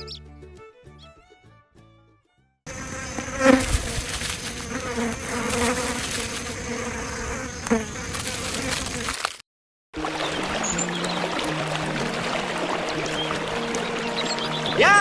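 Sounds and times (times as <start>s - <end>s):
flies buzzing: 2.7s - 9.4s, 10.0s - 15.0s.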